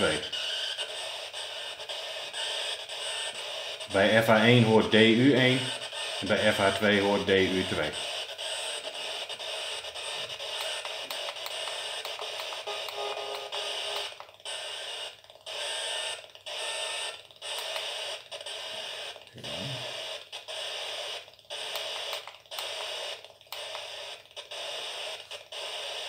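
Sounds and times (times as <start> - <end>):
radio static bursts: 0.0 - 26.0.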